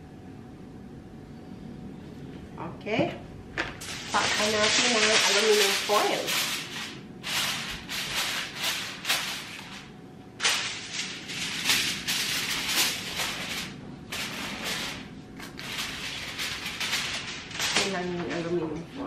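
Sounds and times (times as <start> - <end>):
aluminum foil crinkling: 3.8 - 18.8.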